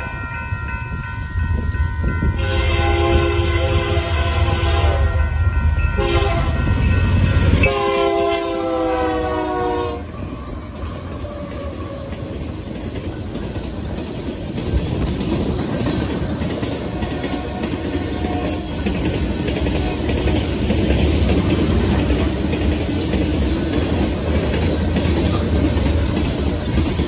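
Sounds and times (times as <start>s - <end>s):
locomotive air horn blasts: 2.4s - 5.2s, 6.0s - 6.6s, 7.6s - 10.2s
train wheels clattering on rails: 5.7s - 27.0s.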